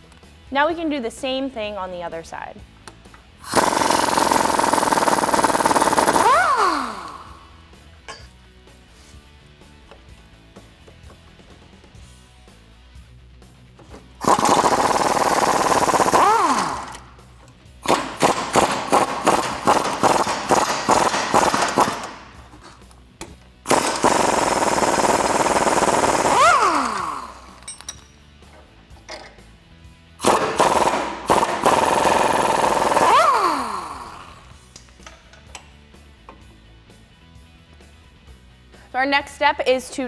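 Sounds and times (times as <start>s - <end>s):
stuttering hammering bursts: 3.4s - 7.3s, 14.2s - 17.0s, 17.8s - 22.3s, 23.7s - 27.5s, 30.2s - 34.3s
pneumatic impact wrench: 3.4s - 7.5s, 14.2s - 17.2s, 17.8s - 22.8s, 23.6s - 27.8s, 30.2s - 34.6s.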